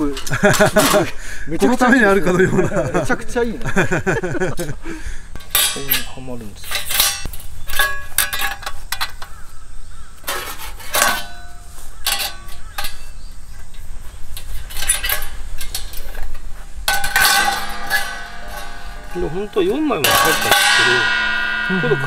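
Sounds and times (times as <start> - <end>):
metal plates clanking and scraping: 0.0 - 22.0.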